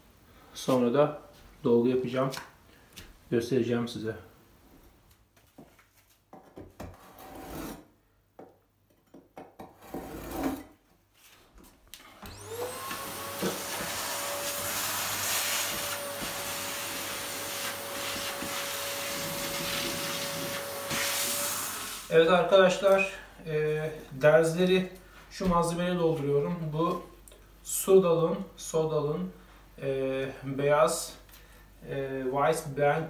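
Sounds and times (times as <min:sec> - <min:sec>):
vacuum cleaner motor whine: 0:12.0 - 0:22.1
vacuum hose sucking debris: 0:12.0 - 0:22.3.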